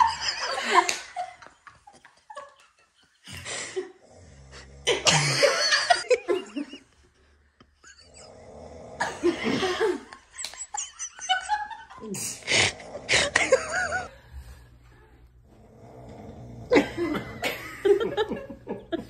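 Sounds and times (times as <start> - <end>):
people laughing: 0.0 - 3.8, 4.9 - 7.1, 9.0 - 14.2, 16.7 - 19.0.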